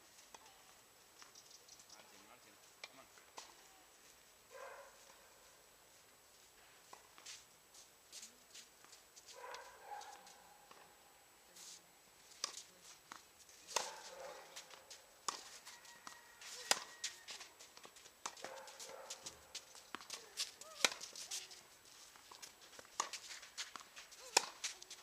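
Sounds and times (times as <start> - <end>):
footsteps: 2.1 - 25.0
tennis ball struck and bouncing: 12.4 - 16.9, 20.8 - 21.1, 22.2 - 24.8.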